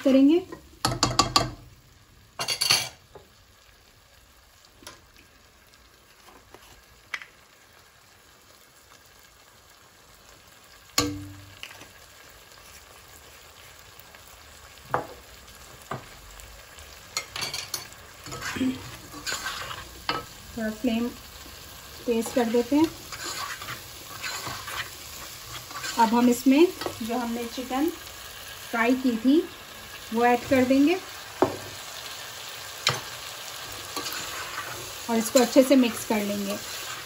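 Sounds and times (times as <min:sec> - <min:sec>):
vegetables sizzling in oil: 0:00.0 - 0:37.0
spatula scraping vegetables: 0:18.2 - 0:20.4, 0:22.1 - 0:27.7, 0:32.8 - 0:37.0.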